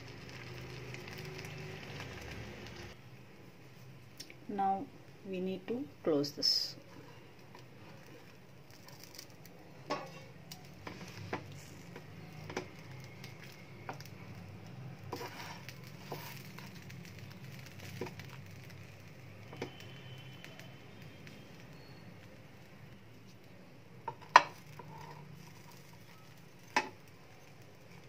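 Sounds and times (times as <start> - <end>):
spatula tapping frying pan: 9.9 - 10.3.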